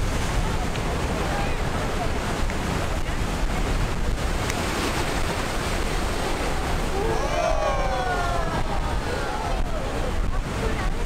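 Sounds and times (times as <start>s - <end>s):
wind buffeting microphone: 0.0s - 11.0s
drawn-out voices rising and falling: 6.5s - 10.9s.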